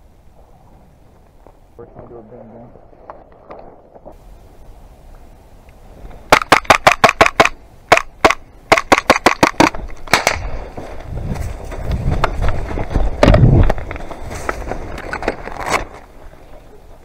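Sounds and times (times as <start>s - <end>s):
airsoft pistol shots: 6.3s - 10.6s
rustling through brush: 9.8s - 17.0s.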